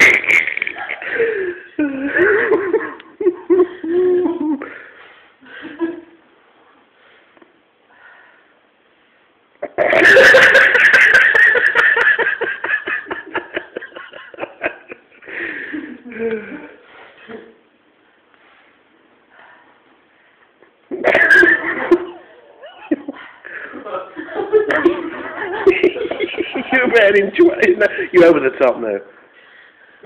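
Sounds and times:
people giggling: 0.0 - 4.6, 9.6 - 16.3, 20.9 - 28.1
people laughing heartily: 9.7 - 16.0, 21.1 - 27.0.

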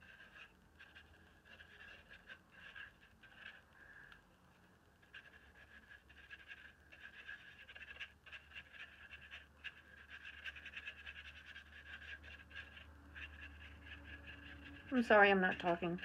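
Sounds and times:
paintbrush scratching on paper: 0.0 - 16.0.

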